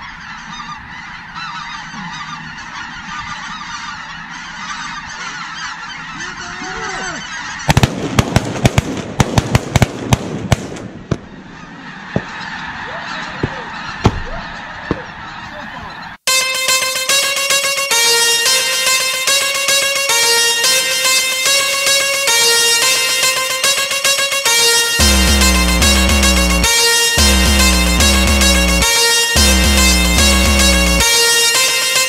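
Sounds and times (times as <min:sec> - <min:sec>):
flock of geese calling: 0:00.0 - 0:07.9, 0:11.0 - 0:32.0
shotgun blasts: 0:07.7 - 0:11.3.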